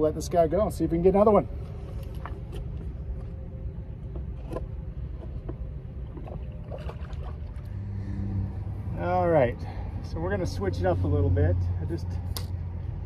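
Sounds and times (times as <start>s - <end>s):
wind rumble: 0.0s - 13.0s
water lapping around boat: 1.4s - 11.2s.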